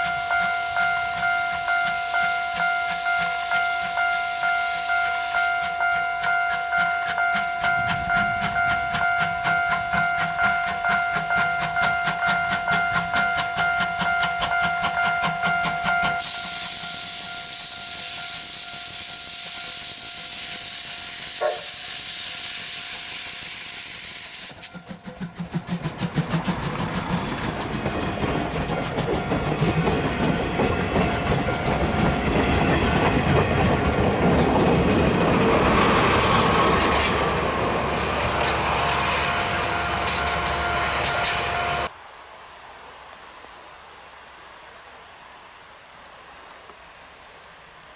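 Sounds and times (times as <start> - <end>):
loud steam hiss: 0.0 - 8.7, 12.3 - 42.0
train wheels clacking over rail joints: 5.4 - 20.6, 24.5 - 41.9.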